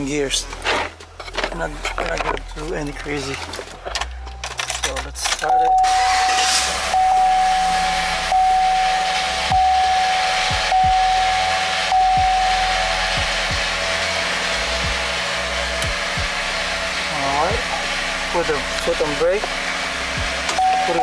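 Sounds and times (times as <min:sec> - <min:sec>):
truck engine idling: 0:00.0 - 0:21.0
dashboard warning chime: 0:05.4 - 0:13.8, 0:20.5 - 0:21.0.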